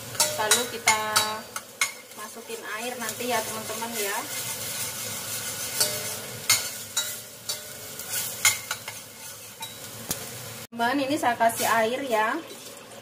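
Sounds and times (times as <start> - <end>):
spice paste sizzling in oil: 0.0 - 13.0
utensil scraping and knocking pan: 3.1 - 9.9.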